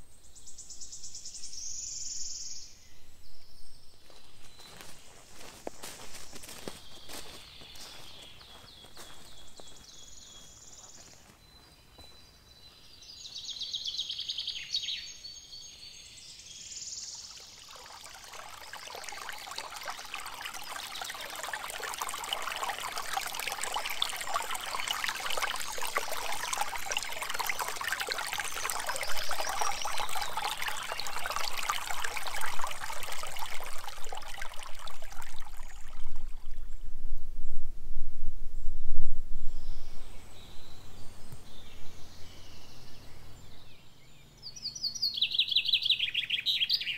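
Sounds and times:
birds singing: 0:00.0 - 0:36.0, 0:39.6 - 0:46.9
stream trickling over rocks: 0:03.4 - 0:11.3, 0:16.2 - 0:37.2.

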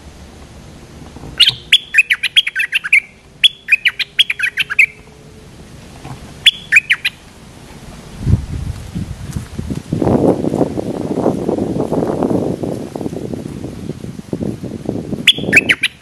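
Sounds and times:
bird chattering song: 0:01.4 - 0:05.2, 0:06.4 - 0:07.3, 0:15.3 - 0:16.0.

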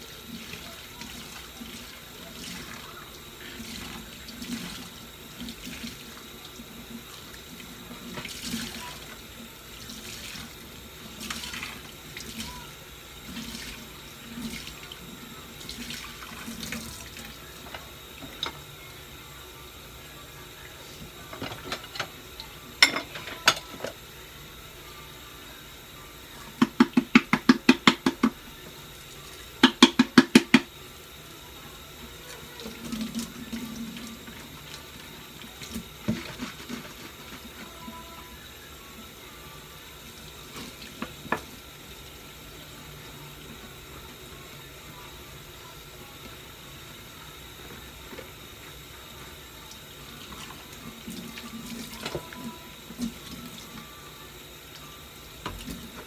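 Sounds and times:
faucet running into sink: 0:00.0 - 0:18.7, 0:26.6 - 0:30.8, 0:32.1 - 0:38.0, 0:39.8 - 0:42.4, 0:49.6 - 0:54.0, 0:54.6 - 0:56.0
dishes knocking and clinking: 0:22.8 - 0:23.9, 0:29.6 - 0:30.6.

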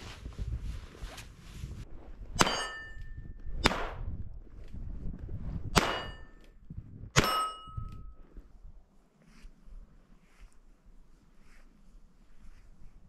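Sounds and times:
metallic ring of steel target: 0:02.4 - 0:04.0, 0:05.7 - 0:06.4, 0:07.1 - 0:08.2
sharp pistol shots: 0:03.6 - 0:04.1, 0:05.8 - 0:06.3.

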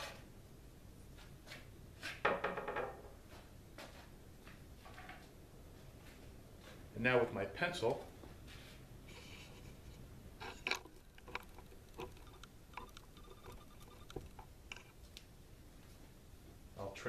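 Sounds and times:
faint clicks and taps: 0:10.5 - 0:15.3.

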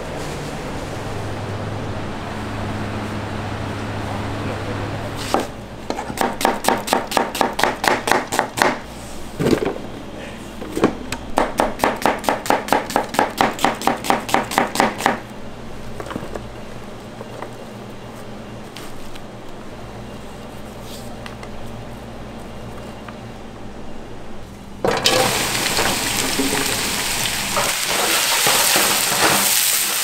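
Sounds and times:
steady hum: 0:00.0 - 0:28.9
knife chopping on cutting board: 0:05.3 - 0:08.8, 0:11.4 - 0:15.2.

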